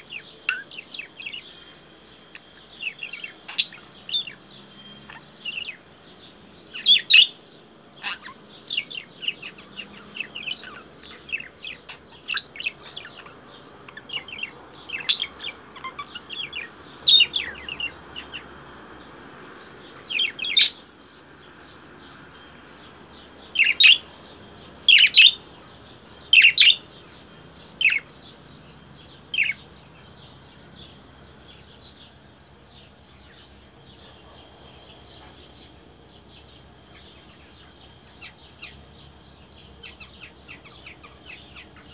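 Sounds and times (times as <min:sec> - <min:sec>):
budgerigar chirping and squawking: 0:03.2 - 0:04.4, 0:08.0 - 0:10.8, 0:11.4 - 0:17.9.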